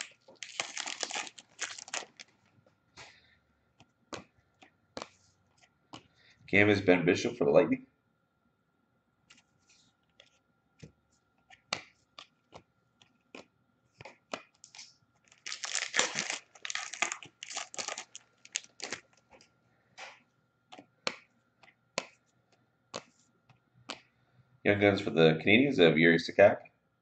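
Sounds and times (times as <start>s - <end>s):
wrapper crinkling and tearing: 0.0s - 2.3s, 14.6s - 19.1s
cards clicking and tapping: 11.5s - 14.9s, 15.5s - 24.1s.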